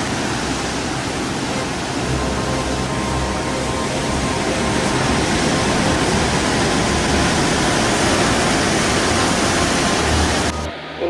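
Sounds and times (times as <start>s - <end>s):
heavy surf breaking on rocks: 0.0s - 10.7s.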